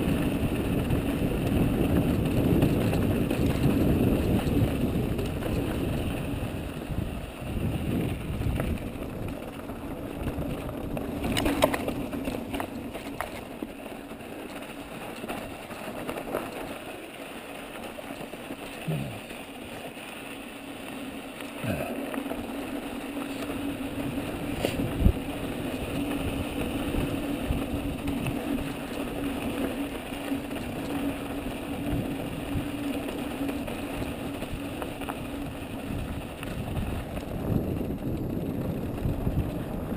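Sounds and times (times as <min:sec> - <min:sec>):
wind rushing over microphone: 0:00.0 - 0:12.2, 0:23.2 - 0:29.4, 0:33.7 - 0:39.9
bike tyres crunching on gravel: 0:00.0 - 0:39.9
bike knocking over bumps: 0:07.8 - 0:16.8.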